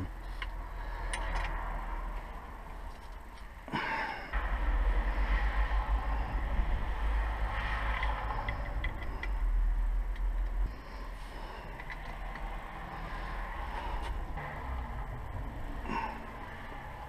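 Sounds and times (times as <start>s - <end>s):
small parts clicking: 7.9s - 10.7s, 11.6s - 12.7s.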